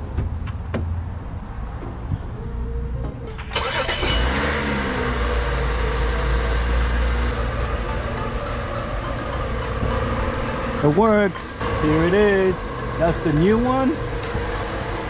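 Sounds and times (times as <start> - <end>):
engine cranking and idling: 3.2 - 15.0.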